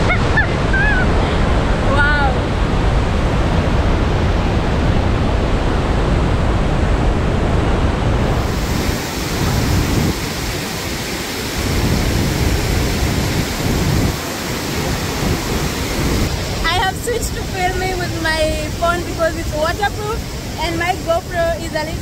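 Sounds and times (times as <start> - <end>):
rush of falling water: 0.0 - 7.3, 7.9 - 22.0.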